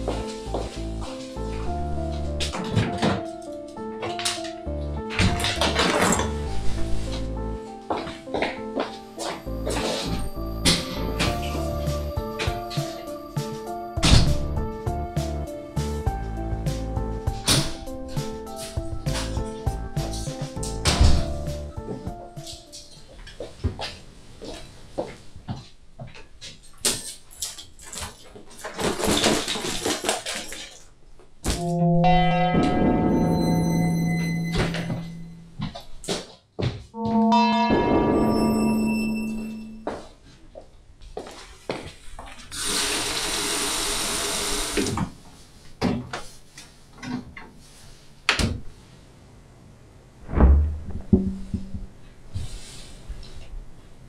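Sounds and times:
footsteps on wooden floor: 0:00.0 - 0:03.4, 0:06.7 - 0:10.3, 0:35.6 - 0:37.2
heavy low thump: 0:50.3 - 0:52.0
knocks: 0:50.3 - 0:52.0.

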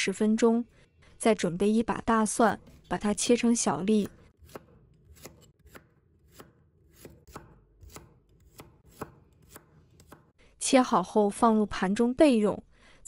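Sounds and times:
cleaver chopping on wooden board: 0:04.0 - 0:10.3.

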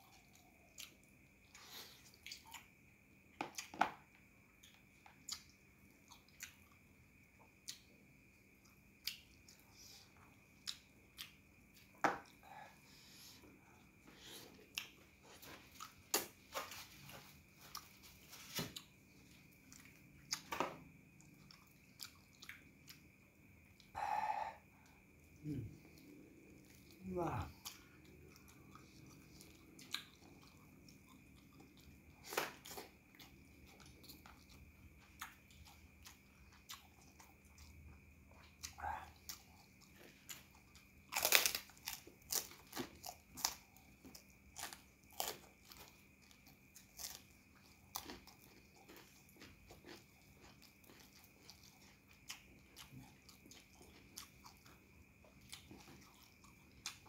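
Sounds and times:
person chewing: 0:00.0 - 0:02.7, 0:04.6 - 0:06.8, 0:08.6 - 0:23.9, 0:24.9 - 0:57.0
faint steady hum: 0:00.0 - 0:57.0
cracker crunching: 0:41.1 - 0:54.5.

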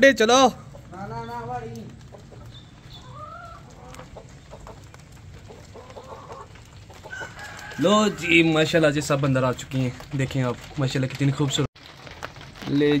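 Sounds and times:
chickens clucking softly: 0:01.9 - 0:07.8.

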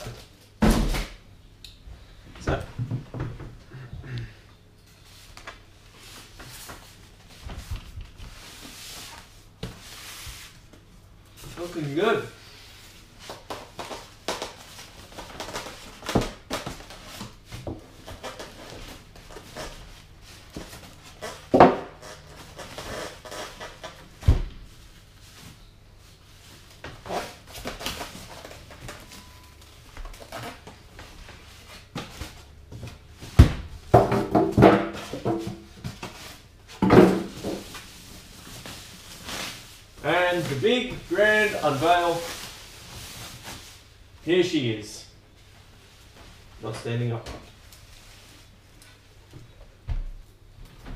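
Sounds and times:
polystyrene foam squeaking: 0:21.0 - 0:24.1, 0:30.0 - 0:30.8, 0:38.9 - 0:43.8
plastic bag rustling: 0:36.0 - 0:44.1.

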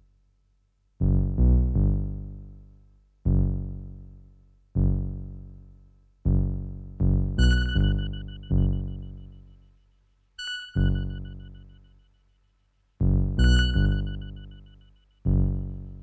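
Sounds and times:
low synthesizer notes: 0:01.0 - 0:09.5, 0:13.0 - 0:14.7.

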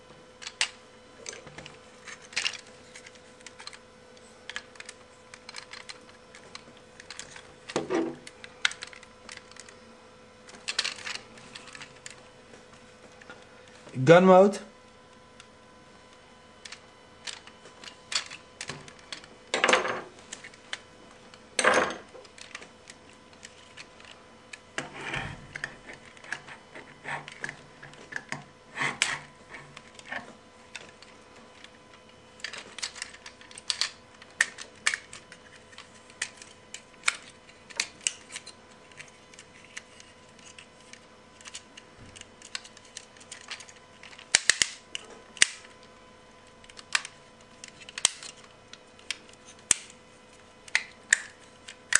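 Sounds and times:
plastic toy parts clicking: 0:04.5 - 0:07.4, 0:32.4 - 0:41.6, 0:42.2 - 0:45.7, 0:46.6 - 0:48.4.

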